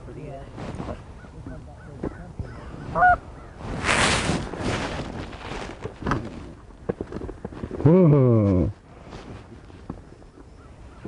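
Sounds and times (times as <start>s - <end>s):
goose honk: 1.8s - 3.6s
loud scratchy noise burst: 2.9s - 5.8s.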